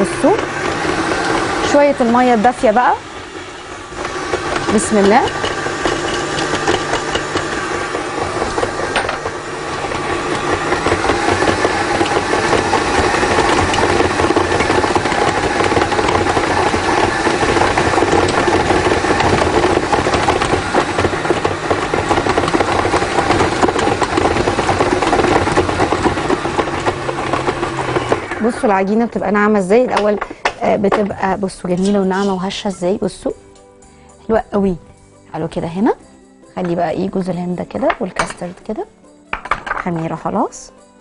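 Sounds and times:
stand mixer motor running: 0.0s - 31.0s.

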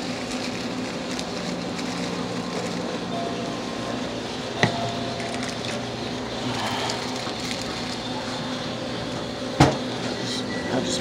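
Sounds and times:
store room noise hum: 0.0s - 11.0s.

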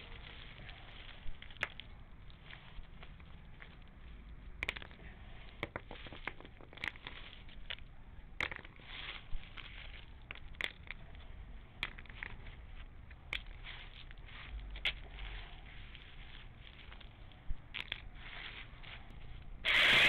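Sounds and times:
gravel being scooped: 0.0s - 6.1s, 13.4s - 20.0s.

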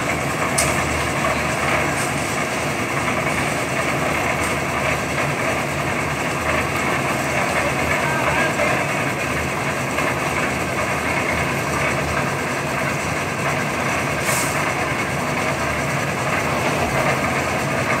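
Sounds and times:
engine running: 0.0s - 18.0s
brief hiss: 14.2s - 14.6s.

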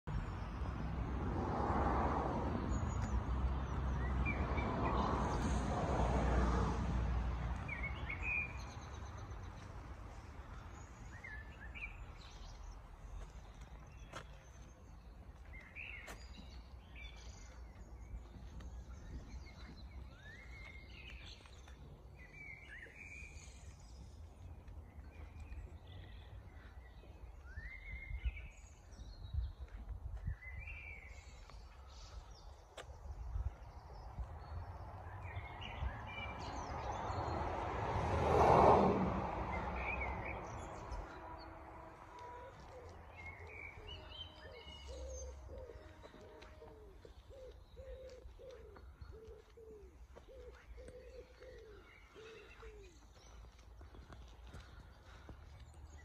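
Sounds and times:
small birds chirping: 42.1s - 56.0s.

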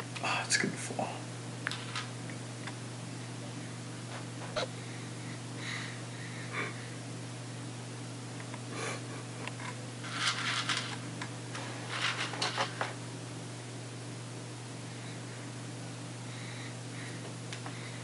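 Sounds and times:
steady low hum: 0.0s - 18.0s
cereal rattling in a plastic bowl: 10.0s - 11.0s, 11.9s - 12.7s.

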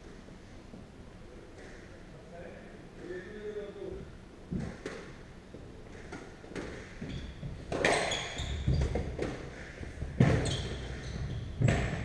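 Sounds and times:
court shoes squeaking on floor: 6.0s - 12.0s.

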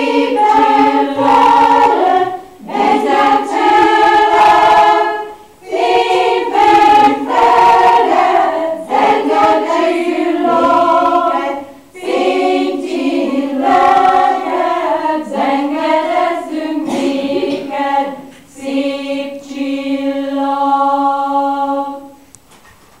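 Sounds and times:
women's choir singing: 0.0s - 22.2s
singers breathing: 11.6s - 12.0s.

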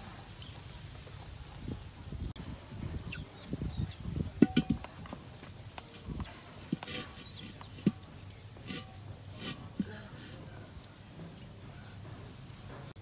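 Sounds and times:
small birds calling: 2.9s - 12.0s
chickens calling: 2.9s - 12.1s
cooking gear knocking and clinking: 4.4s - 5.1s.

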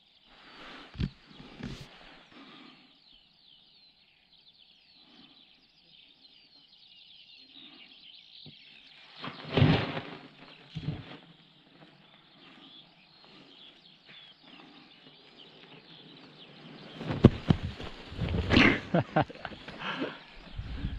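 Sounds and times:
small birds chirping: 0.0s - 20.9s.

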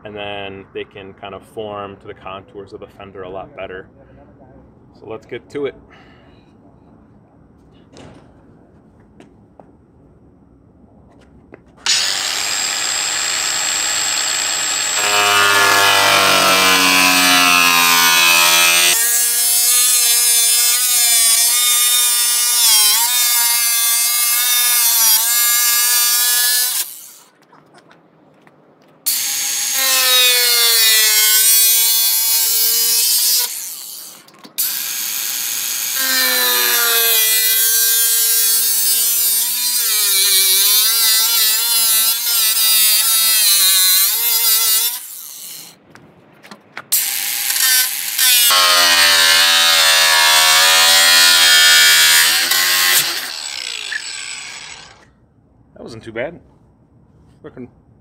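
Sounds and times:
power tool cutting sheet metal: 11.8s - 27.3s, 29.1s - 45.7s, 46.9s - 55.1s.

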